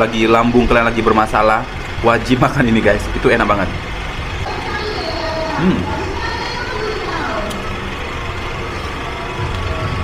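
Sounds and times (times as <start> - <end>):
steady low rumble: 0.0 - 10.0
click: 7.4 - 7.6.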